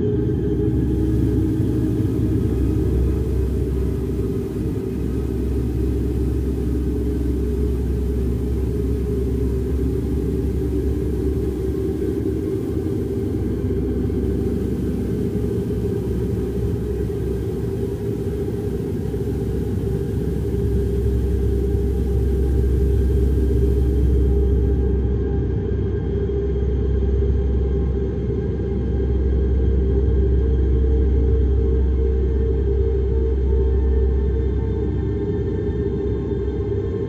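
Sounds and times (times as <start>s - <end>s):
held droning tones: 0.0s - 25.2s
steady low rumble: 0.0s - 26.8s.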